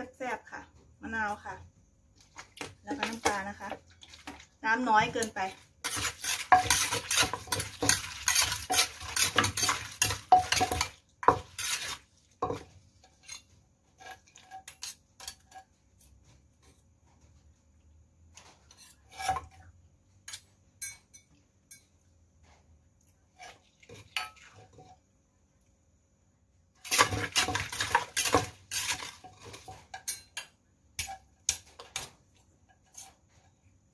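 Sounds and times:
metal spoon scraping: 0:05.2 - 0:12.0, 0:13.0 - 0:15.7, 0:18.6 - 0:19.6, 0:26.8 - 0:32.1.

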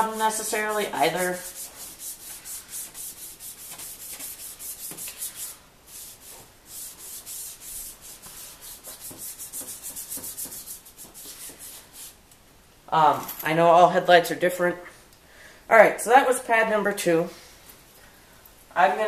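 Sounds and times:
pad wet-sanding plastic lens: 0:00.6 - 0:12.2.

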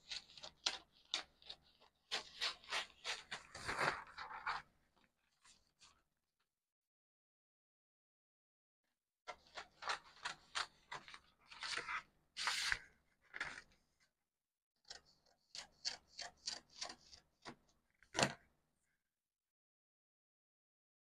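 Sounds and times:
scissors snipping paper: 0:00.0 - 0:04.1, 0:09.3 - 0:11.8, 0:14.9 - 0:17.6
paper scraping: 0:00.0 - 0:04.7, 0:09.3 - 0:13.7.

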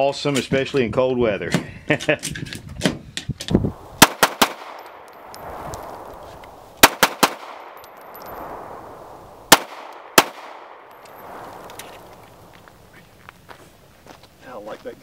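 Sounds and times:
pistol shots: 0:04.0 - 0:05.3, 0:06.8 - 0:08.2, 0:09.5 - 0:11.3.

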